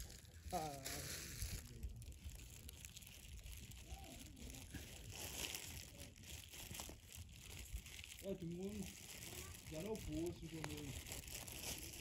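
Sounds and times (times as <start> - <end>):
faint distant voice: 3.7 - 5.1.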